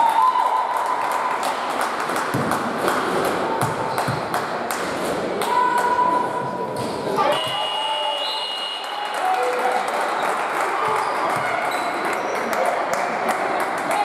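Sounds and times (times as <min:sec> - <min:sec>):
basketball bouncing: 0:03.6 - 0:04.4
shoe squeaks on court: 0:10.9 - 0:12.5.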